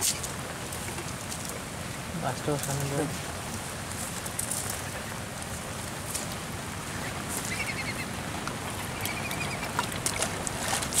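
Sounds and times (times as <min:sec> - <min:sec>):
steady background hiss: 0:00.0 - 0:11.0
ducklings peeping: 0:06.9 - 0:10.5.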